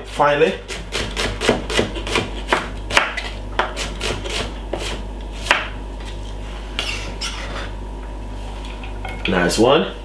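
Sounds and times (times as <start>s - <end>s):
knife chopping on wooden board: 0.7s - 5.8s.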